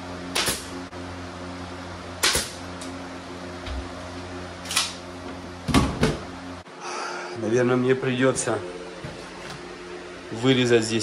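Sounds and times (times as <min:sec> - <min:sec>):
nail gun firing: 0:00.3 - 0:00.7, 0:02.2 - 0:02.6.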